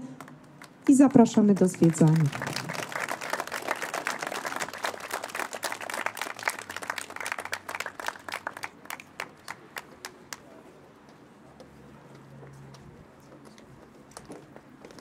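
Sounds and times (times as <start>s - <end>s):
audience applauding: 0.2s - 10.4s.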